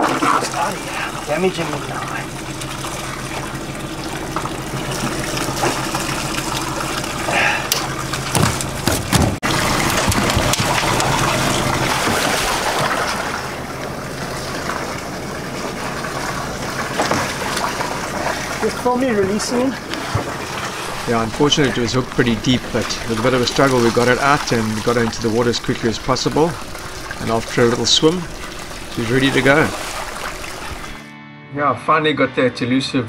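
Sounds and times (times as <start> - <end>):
water splashing around boat: 0.0 - 31.0
low motor hum: 0.1 - 31.0.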